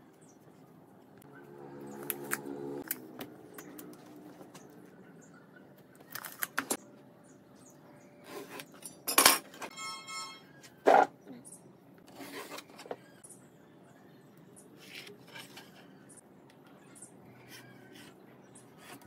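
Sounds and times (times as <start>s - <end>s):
metallic ringing: 9.7s - 10.6s.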